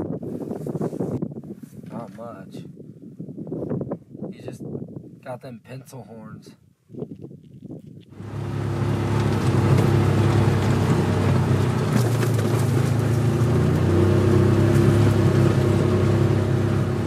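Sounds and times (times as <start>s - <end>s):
vehicle engine running: 8.1s - 17.0s.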